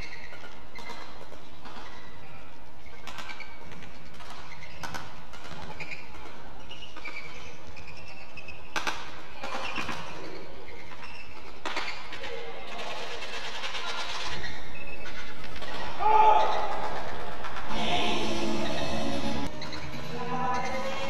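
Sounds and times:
shoes squeaking on court: 0.0s - 17.7s, 18.6s - 21.0s
sports hall background: 0.0s - 21.0s.

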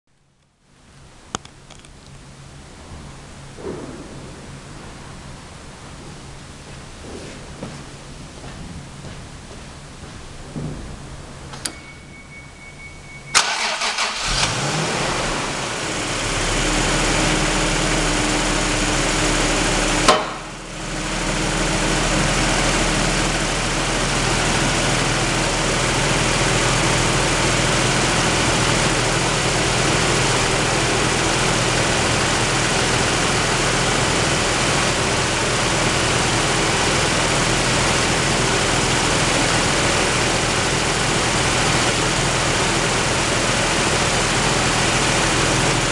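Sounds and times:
car engine starting and idling: 10.9s - 45.9s.

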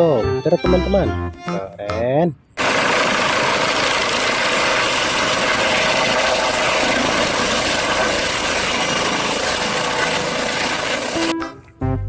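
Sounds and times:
helicopter hovering: 2.6s - 11.3s
thin high whine: 2.6s - 11.3s.

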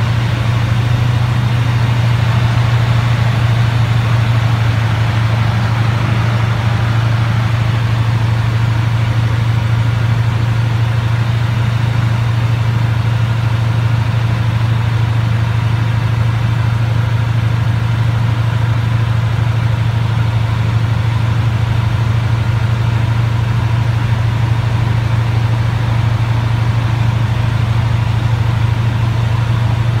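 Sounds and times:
light aircraft engine droning: 0.0s - 14.1s.

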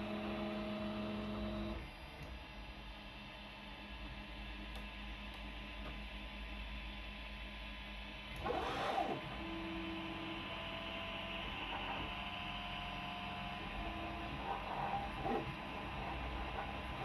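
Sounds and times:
printer hum: 0.0s - 17.0s.

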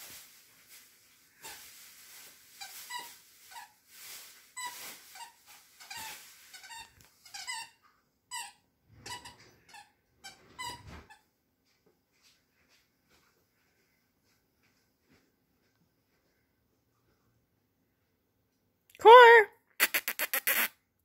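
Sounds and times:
squeaky dog toy squeaks: 4.6s - 11.2s, 19.8s - 20.8s.

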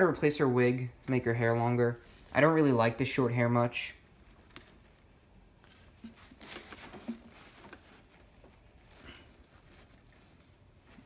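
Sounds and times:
fabric rustling: 4.1s - 11.0s.

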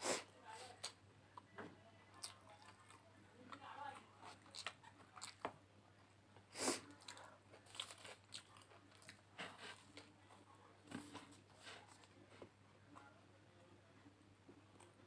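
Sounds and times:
chewing crunchy food: 2.1s - 6.2s, 6.8s - 13.1s.

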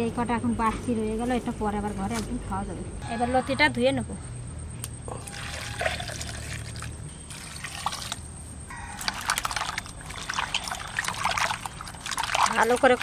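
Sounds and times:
water pouring into a basin: 5.2s - 8.2s, 9.0s - 13.0s
hands swishing stems in water: 9.0s - 13.0s.

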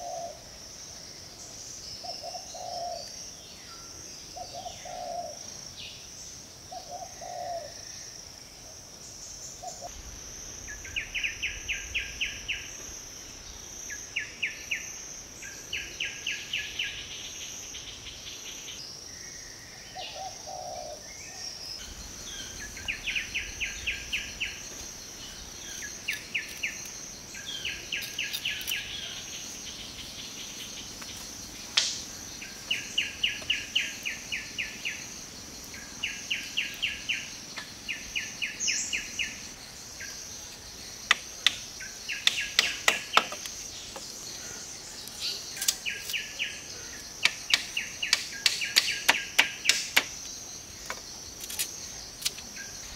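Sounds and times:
high insect drone: 0.0s - 52.9s
low bird calls: 2.0s - 3.2s, 19.2s - 31.2s.

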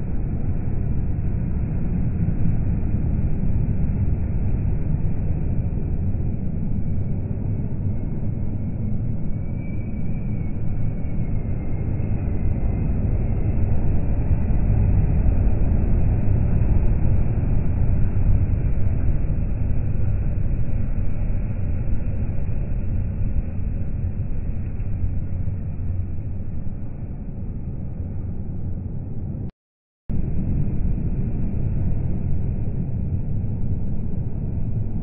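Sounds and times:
motorway traffic rumble: 0.0s - 29.5s, 30.1s - 35.0s.

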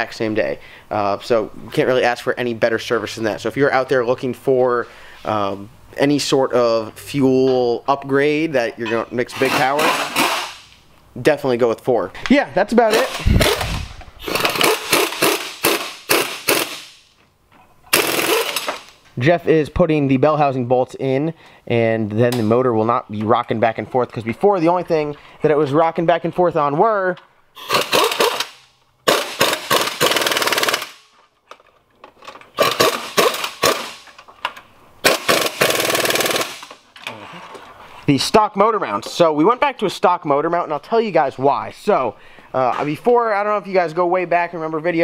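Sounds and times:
impact wrench hammering: 9.4s - 10.7s, 12.9s - 17.1s, 17.9s - 18.9s, 27.6s - 31.0s, 32.6s - 34.2s, 35.0s - 36.8s.

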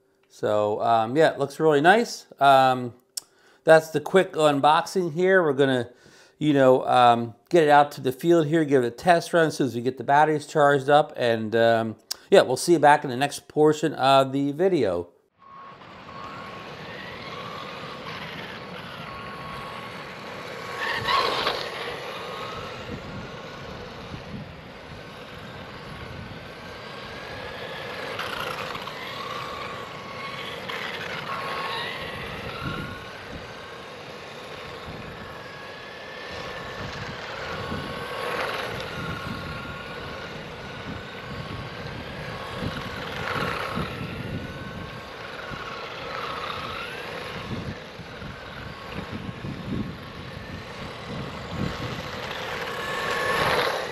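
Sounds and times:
toy truck electric motor whining: 15.3s - 53.9s.

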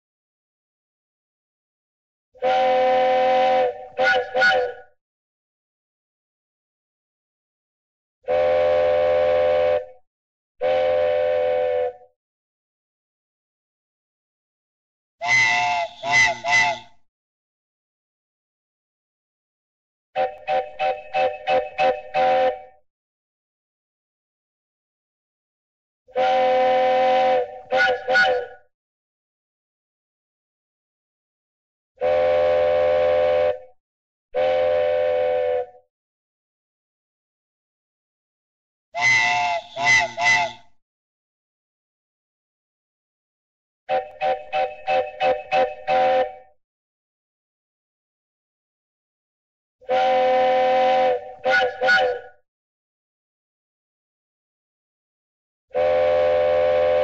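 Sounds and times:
cartoon train whistle blasts: 2.4s - 4.9s, 8.3s - 10.0s, 10.6s - 12.1s, 15.2s - 17.0s, 20.2s - 22.8s, 26.1s - 28.7s, 32.0s - 33.7s, 34.4s - 35.8s, 39.0s - 40.8s, 43.9s - 46.5s, 49.8s - 52.4s, 55.7s - 57.0s.

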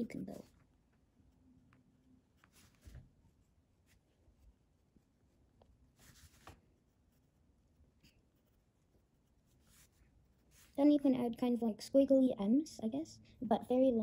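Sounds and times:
pencil scratching on paper: 1.2s - 11.3s.

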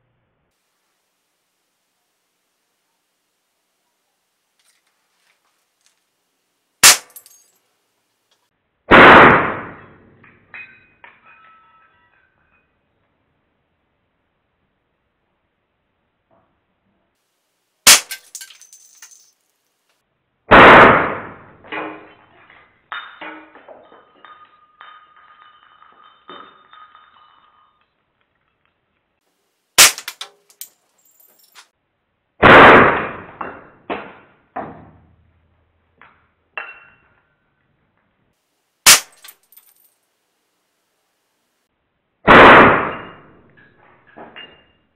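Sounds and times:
pieces clinking and rattling: 7.0s - 7.6s, 17.9s - 19.6s, 22.9s - 28.7s, 29.8s - 31.7s, 38.9s - 40.0s
loud metallic clang: 29.8s - 30.6s
air rifle shot cracks: 42.3s - 43.0s.

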